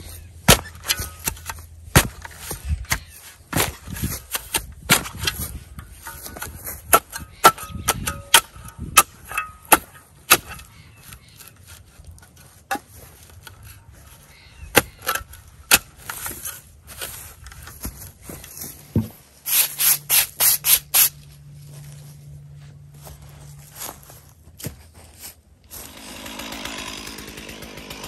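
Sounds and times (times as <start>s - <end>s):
shovel striking sod and soil: 0.0s - 21.3s.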